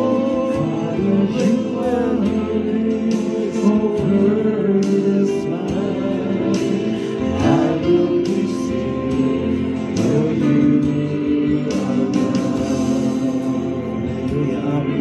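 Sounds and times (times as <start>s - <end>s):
person singing into a microphone: 0.0s - 15.0s.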